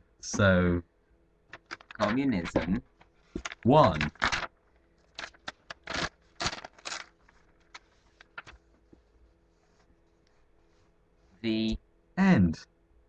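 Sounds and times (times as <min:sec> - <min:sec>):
paper rustling on a desk: 0:01.5 - 0:11.4.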